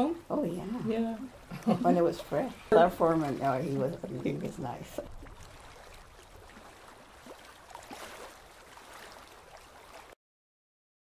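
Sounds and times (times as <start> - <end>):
faint recording hiss: 0.0 - 5.3.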